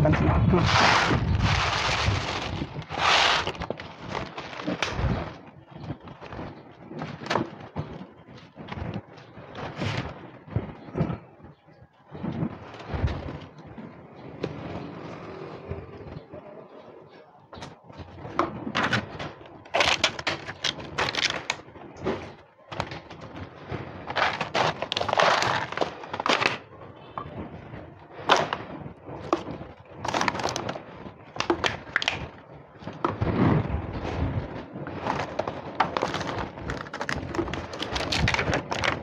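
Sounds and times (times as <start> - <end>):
cats crunching food: 0.6 - 5.4, 24.0 - 26.6, 29.2 - 33.1, 34.8 - 39.0.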